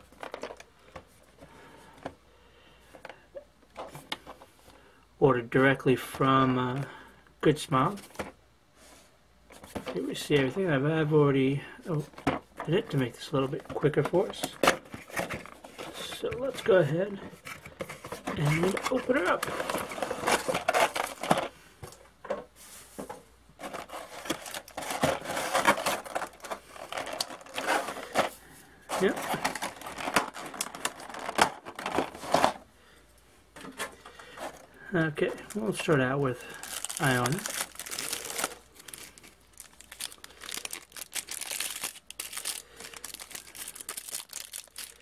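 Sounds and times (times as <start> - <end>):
plastic blister tray crinkling: 12.0 - 22.4, 23.6 - 32.6, 33.6 - 45.0.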